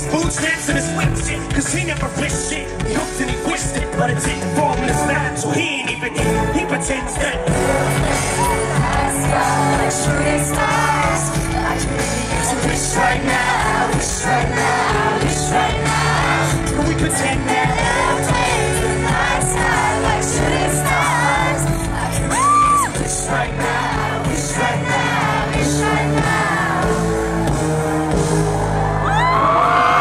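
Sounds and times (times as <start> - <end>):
hip-hop music over loudspeakers: 0.0 - 30.0
crowd singing along: 2.8 - 29.0
crowd cheering: 6.1 - 11.2, 17.6 - 23.0, 23.6 - 30.0.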